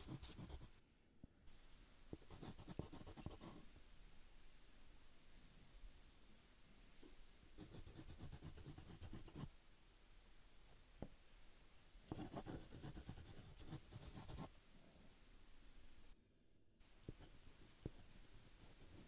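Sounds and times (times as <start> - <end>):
stylus scratching on a tablet: 0.0 - 0.8, 2.2 - 3.6, 7.6 - 9.5, 12.1 - 14.5, 17.0 - 19.0.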